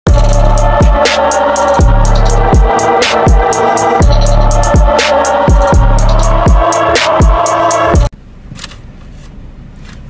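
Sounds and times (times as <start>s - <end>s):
electronic music: 0.1s - 8.1s
hi-hat pattern: 0.1s - 8.1s
rising noise sweep: 0.1s - 8.1s
deep bass kicks: 1.8s - 8.1s.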